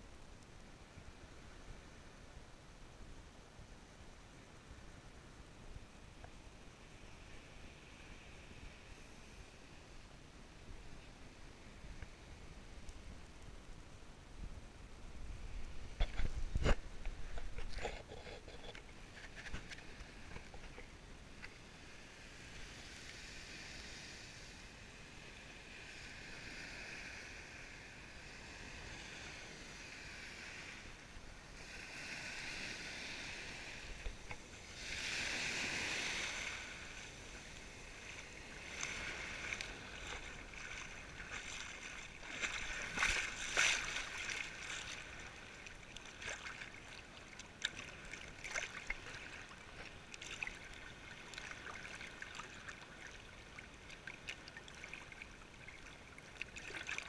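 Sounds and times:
small waves sloshing: 14.9s - 57.0s.

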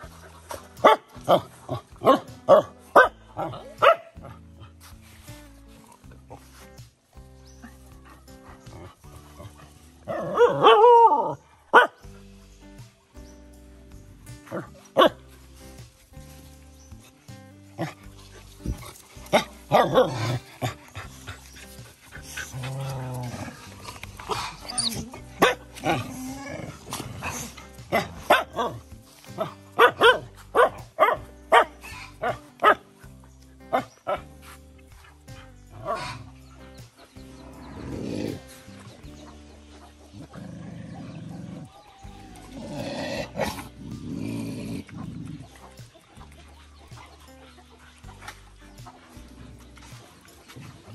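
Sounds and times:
dog barking and yelping: 0.0s - 4.7s, 7.6s - 12.2s, 14.4s - 15.2s, 17.8s - 33.0s, 33.6s - 37.0s
background music: 0.0s - 50.9s.

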